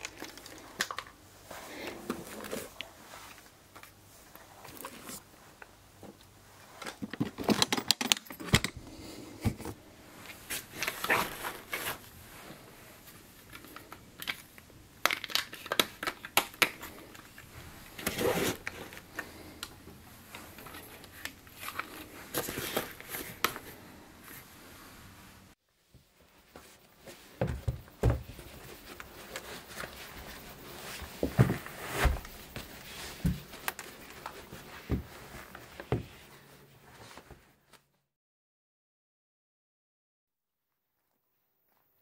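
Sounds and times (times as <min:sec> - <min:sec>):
fabric rustling: 0:10.0 - 0:13.8, 0:28.2 - 0:37.4.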